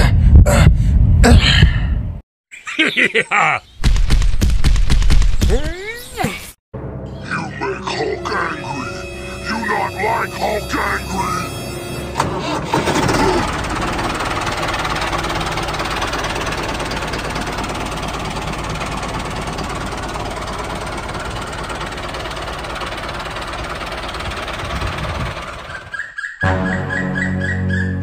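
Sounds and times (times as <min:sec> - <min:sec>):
small tractor engine running: 0:12.2 - 0:26.0.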